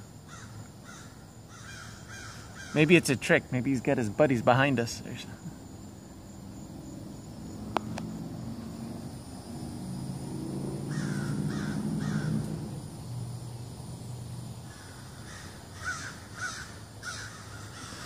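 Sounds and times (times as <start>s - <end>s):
crows cawing: 0.3s - 2.9s, 10.8s - 12.8s, 14.6s - 18.0s.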